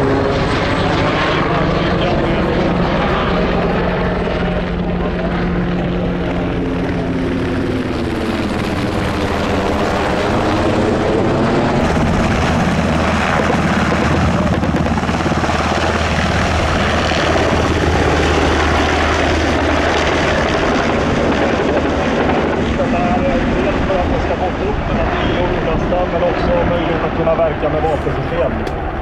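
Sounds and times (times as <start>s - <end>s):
helicopter rotor beat: 0.0s - 29.0s.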